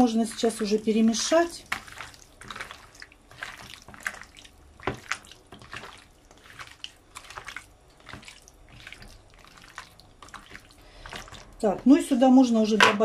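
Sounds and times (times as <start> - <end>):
hands squishing wet raw chicken: 0.0 - 11.8.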